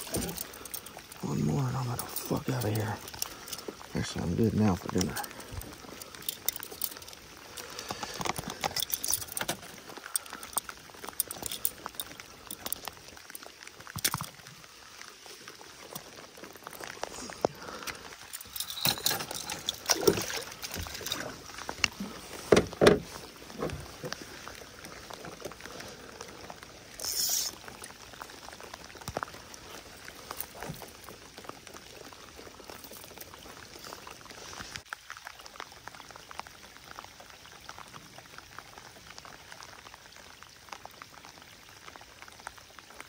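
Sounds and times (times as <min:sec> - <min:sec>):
rain pattering on water: 0:00.0 - 0:43.0.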